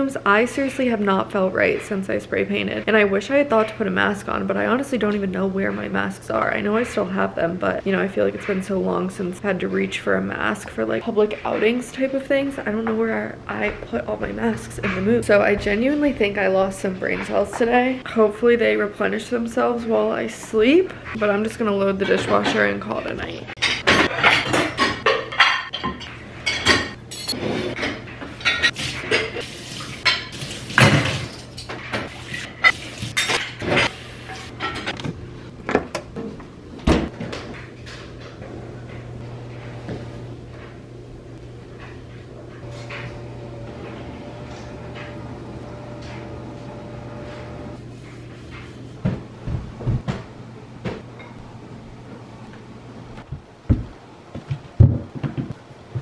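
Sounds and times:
dishes and cutlery clinking: 0:21.9 - 0:35.0
household objects knocking: 0:53.3 - 0:56.0.

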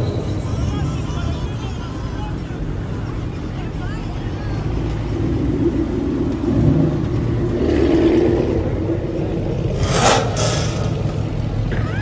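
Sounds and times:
car engine revving: 0:04.7 - 0:11.7.

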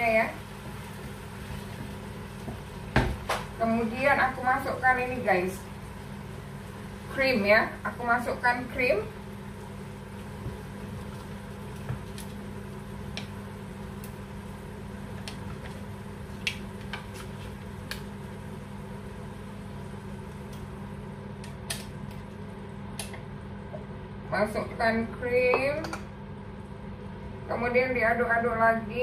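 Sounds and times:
sauce simmering: 0:00.0 - 0:03.6, 0:04.7 - 0:24.2
steady low hum: 0:00.0 - 0:29.0.

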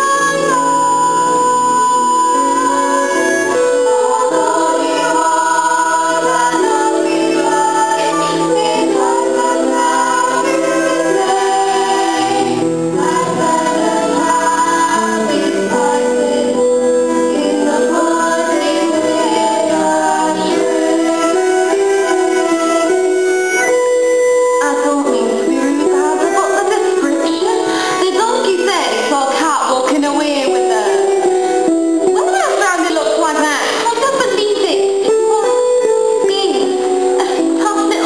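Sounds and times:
cast singing together: 0:00.1 - 0:23.2.

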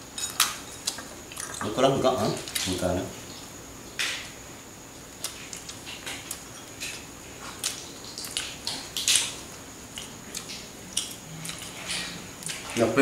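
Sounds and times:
people chewing and lip-smacking: 0:05.2 - 0:12.9.

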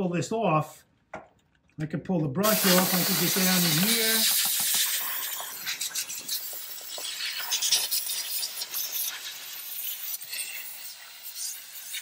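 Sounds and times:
bristles scrubbing metal parts: 0:02.4 - 0:12.0
steam cleaner hissing: 0:02.4 - 0:12.0.

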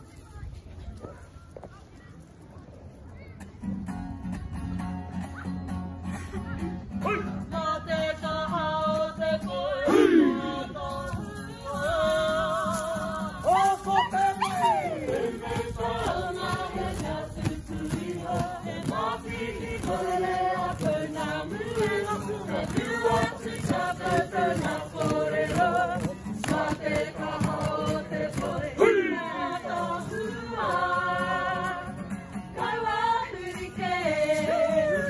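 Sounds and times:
strummed acoustic guitar: 0:03.5 - 0:35.0
men and women singing in chorus: 0:07.1 - 0:35.0.

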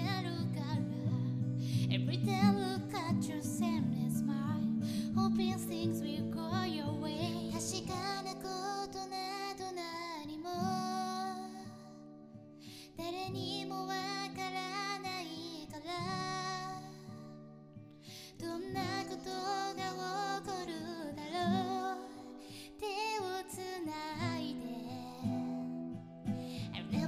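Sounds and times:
strummed acoustic guitar: 0:00.0 - 0:27.0
woman singing pop song: 0:00.0 - 0:27.0
singer breathing: 0:01.6 - 0:01.9, 0:04.8 - 0:05.1, 0:12.6 - 0:13.0, 0:18.0 - 0:18.4, 0:26.3 - 0:26.8.

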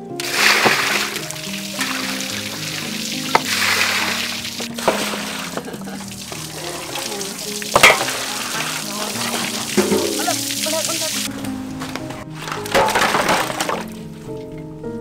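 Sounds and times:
background music: 0:00.0 - 0:15.0
hands washing meat in water: 0:00.1 - 0:14.0
knocks against metal basin: 0:07.8 - 0:08.2, 0:09.7 - 0:10.4.

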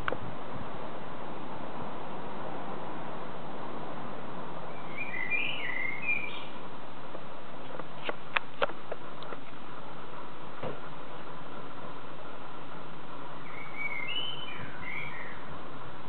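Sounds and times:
steady background hiss: 0:00.0 - 0:16.0
blackbird singing: 0:04.7 - 0:06.6, 0:13.4 - 0:15.5.

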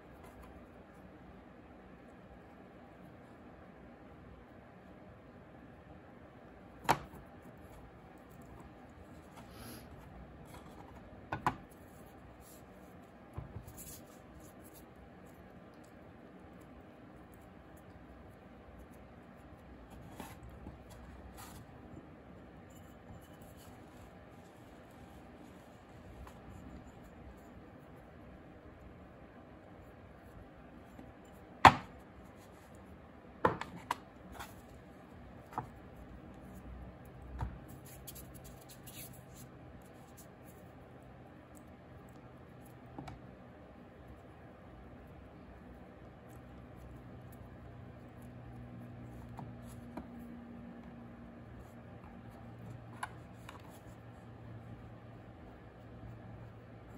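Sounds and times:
hands rubbing clay and burlap: 0:18.8 - 0:28.0.

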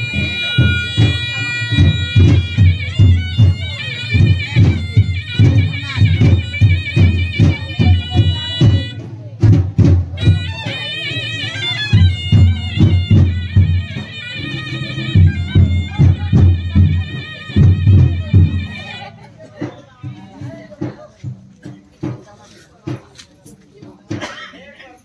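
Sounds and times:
shrill reed instrument melody: 0:00.0 - 0:09.0, 0:10.2 - 0:19.1
steady drum beats: 0:00.0 - 0:25.0.

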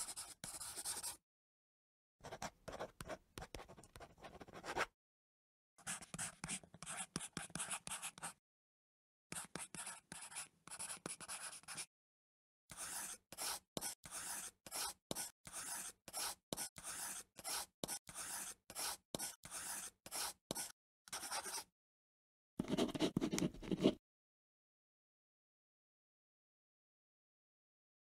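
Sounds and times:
pen scratching on drawing surface: 0:00.0 - 0:01.2, 0:02.3 - 0:04.9, 0:05.8 - 0:08.4, 0:09.4 - 0:11.9, 0:12.7 - 0:21.7, 0:22.6 - 0:24.0.

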